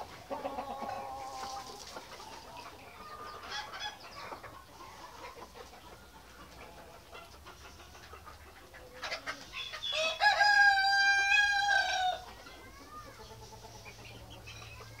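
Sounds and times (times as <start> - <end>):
chicken clucking: 0.0 - 15.0
rooster crowing: 9.9 - 12.2.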